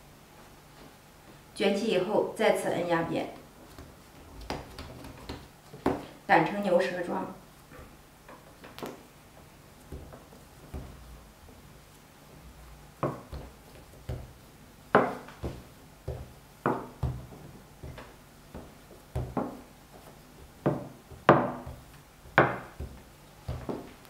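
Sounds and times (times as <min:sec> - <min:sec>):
rolling pin knocking on wooden board: 0:09.9 - 0:11.2, 0:13.0 - 0:24.0.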